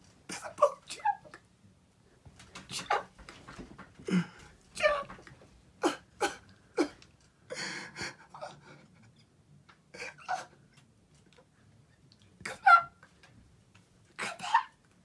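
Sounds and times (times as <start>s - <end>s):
person gasping and whimpering: 4.0s - 4.6s, 5.8s - 8.9s.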